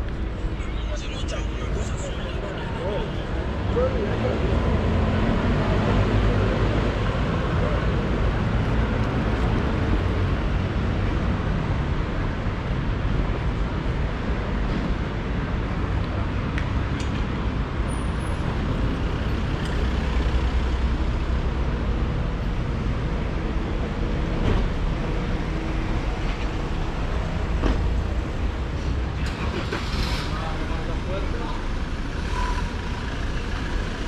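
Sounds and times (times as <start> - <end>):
hum of motor vehicles: 0.0 - 34.0.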